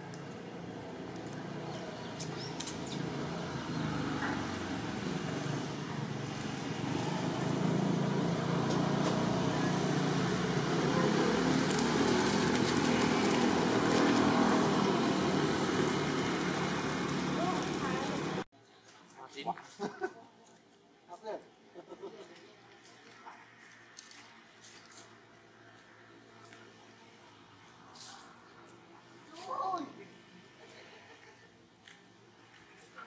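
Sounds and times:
low motor vehicle rumble: 0.0s - 18.5s.

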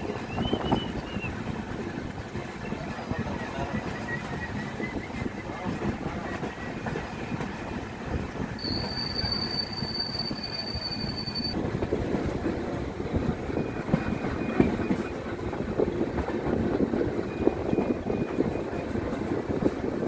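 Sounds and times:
train wheels rumbling on rails: 0.0s - 20.0s
high-pitched wheel squeal: 8.6s - 11.6s.

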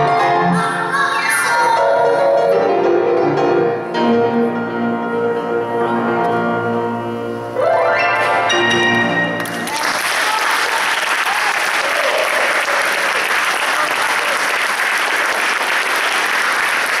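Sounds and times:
grand piano chord ringing: 2.7s - 9.6s
audience applause: 9.4s - 17.0s.

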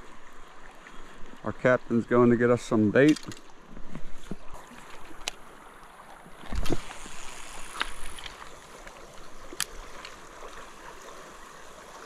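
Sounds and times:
river water rushing: 4.4s - 12.0s.

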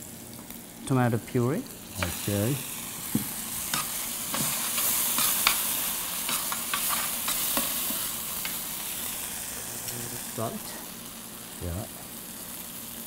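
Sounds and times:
sauce sizzling in a pan: 0.0s - 13.0s.

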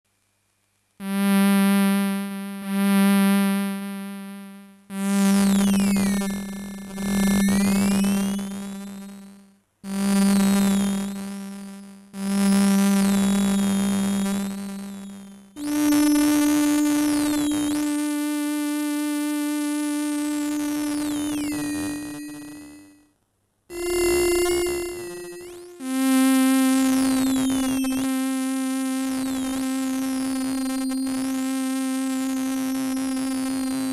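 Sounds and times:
electronic synth tones: 20.0s - 23.0s, 23.7s - 33.9s.

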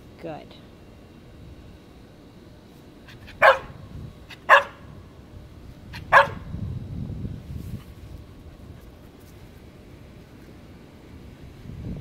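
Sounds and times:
dog barking: 3.2s - 3.7s, 4.3s - 4.8s, 6.0s - 6.4s.

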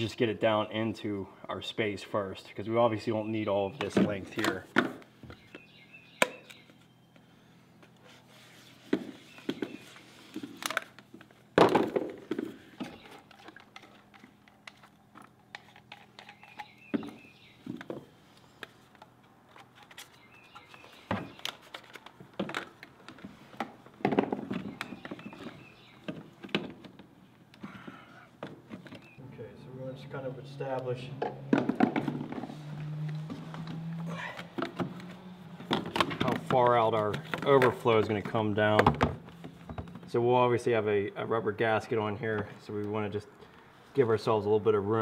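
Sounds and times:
plastic pipes knocking and clicking: 31.2s - 32.4s.

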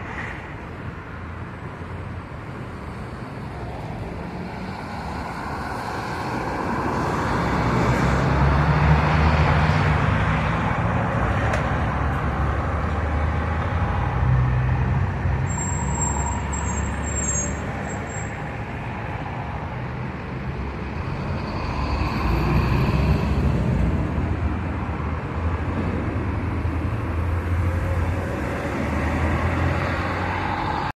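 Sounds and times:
cars and bus passing: 0.0s - 30.9s
high-pitched squeal: 15.4s - 18.5s.

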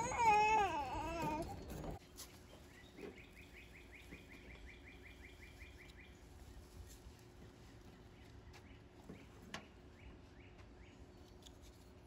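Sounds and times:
high wavering vocal cry: 0.0s - 2.0s
bird chirping: 2.3s - 6.7s.

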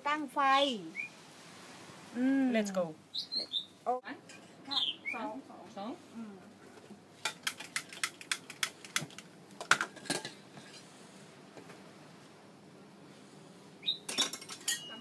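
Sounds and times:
spoon clinking in a saucepan: 14.1s - 15.0s.

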